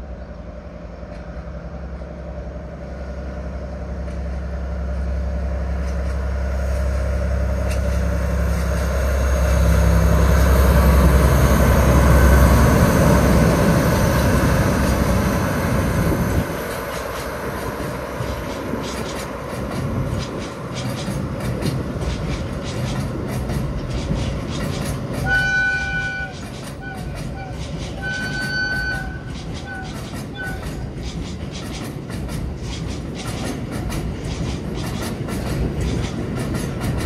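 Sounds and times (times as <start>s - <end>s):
diesel locomotive engine drone: 0.0s - 37.0s
train wheels rattling on rails: 0.0s - 37.0s.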